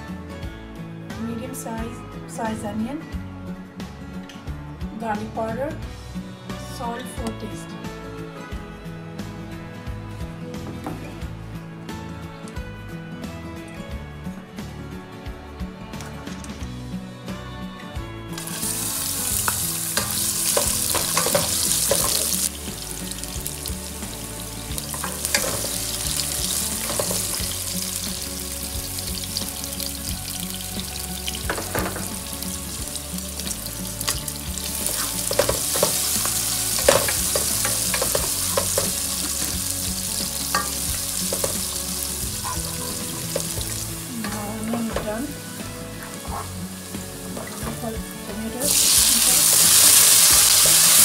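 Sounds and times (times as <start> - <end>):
onions sizzling in hot oil: 18.4 - 51.0.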